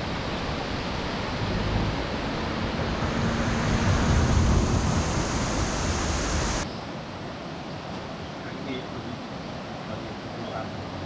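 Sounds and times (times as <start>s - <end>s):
wind buffeting microphone: 0.0s - 6.6s.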